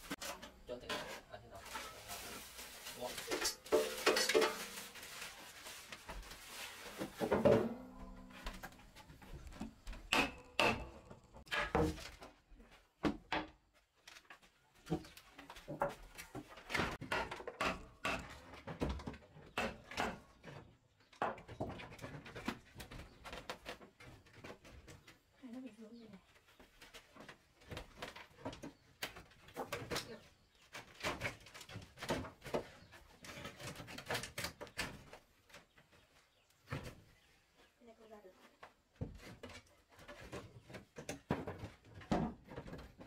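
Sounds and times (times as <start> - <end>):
objects handled on wooden floor: 0.0 - 10.1.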